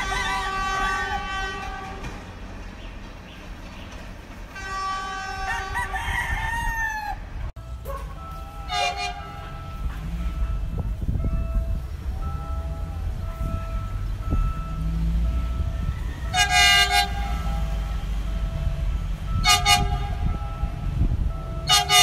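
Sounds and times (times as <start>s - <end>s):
train horn blasts: 0.0s - 2.3s, 4.5s - 6.3s, 7.8s - 10.9s, 11.6s - 22.0s
low train rumble: 0.0s - 22.0s
rooster crowing: 5.2s - 7.3s, 15.8s - 17.0s.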